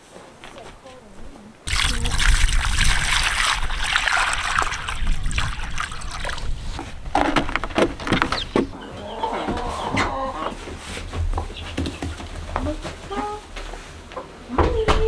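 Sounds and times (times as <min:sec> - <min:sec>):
water splashing into a rubber pan: 0:01.7 - 0:08.3.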